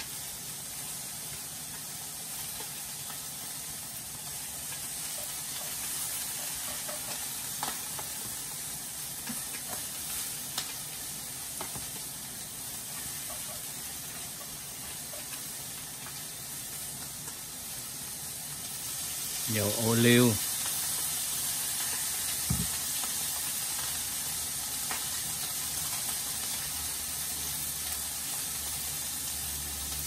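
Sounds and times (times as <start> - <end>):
food sizzling in oil: 0.0 - 30.0.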